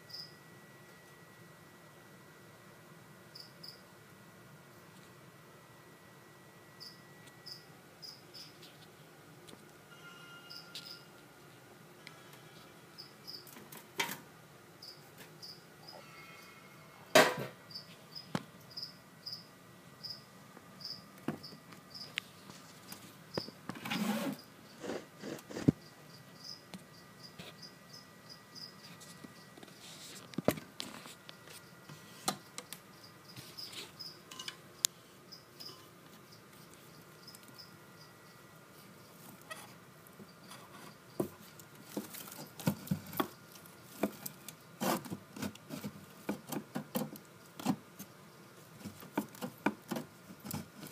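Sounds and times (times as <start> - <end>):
cricket chirping: 0.0 - 0.4, 3.3 - 3.9, 6.6 - 8.6, 9.9 - 11.1, 13.0 - 13.6, 14.8 - 16.9, 17.7 - 22.2, 25.8 - 29.6, 32.6 - 41.2
knocks and rustles: 40.5 - 48.1.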